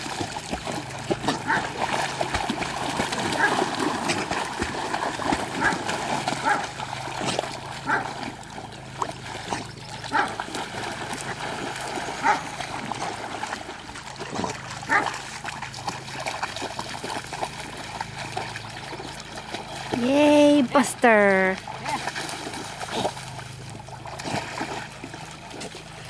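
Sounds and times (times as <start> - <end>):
dogs splashing through water: 0.0 - 26.0
dog barks: 6.4 - 6.6, 7.8 - 8.0, 12.2 - 12.4, 14.9 - 15.1.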